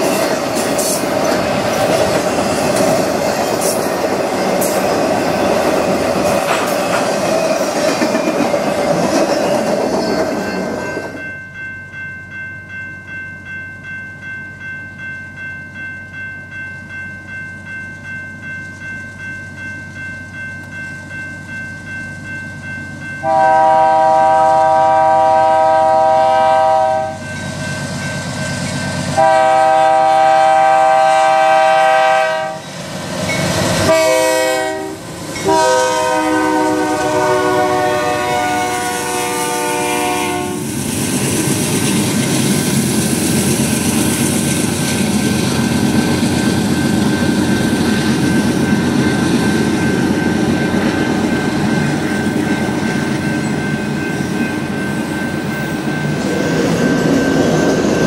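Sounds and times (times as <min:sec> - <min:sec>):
locomotive air horn blasts: 0:23.2 - 0:27.2, 0:29.2 - 0:32.6, 0:33.9 - 0:40.7.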